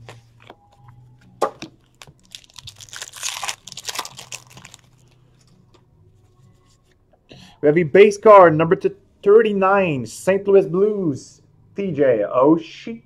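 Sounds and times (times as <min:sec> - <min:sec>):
wrapper crinkling and tearing: 0:01.8 - 0:05.2.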